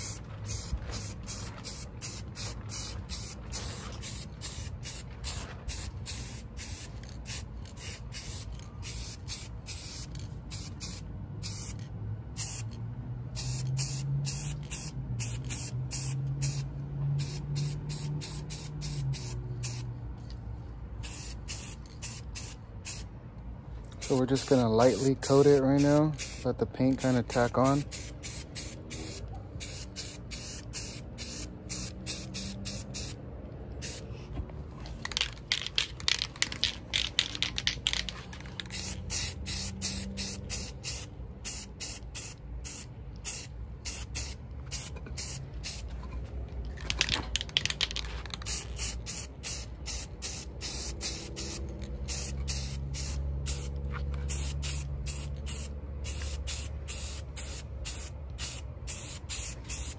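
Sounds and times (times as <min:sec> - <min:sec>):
spray-paint can hissing in bursts: 0:00.0 - 0:19.9, 0:21.0 - 0:23.1, 0:24.0 - 0:33.2, 0:33.8 - 0:34.0, 0:35.1 - 0:45.9, 0:46.9 - 0:59.9.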